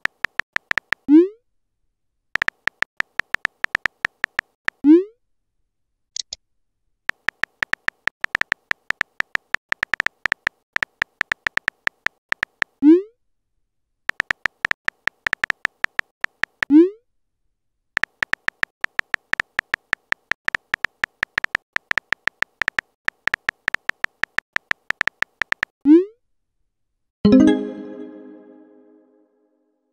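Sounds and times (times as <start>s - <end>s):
keyboard typing clicks: 0.0s - 1.1s, 2.4s - 4.8s, 7.1s - 12.8s, 14.1s - 16.7s, 18.0s - 25.7s.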